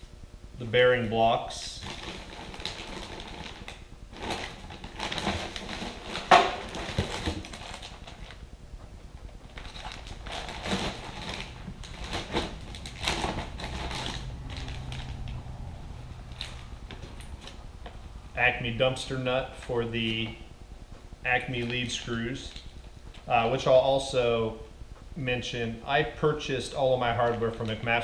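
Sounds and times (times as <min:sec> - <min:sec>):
paper and plastic bags rustling: 0:01.8 - 0:08.4, 0:09.5 - 0:15.4.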